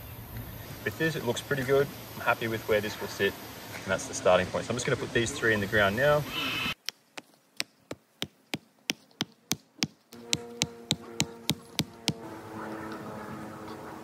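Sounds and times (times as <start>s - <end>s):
hammer striking wooden stake: 6.8s - 12.2s
fly buzzing: 10.1s - 13.8s.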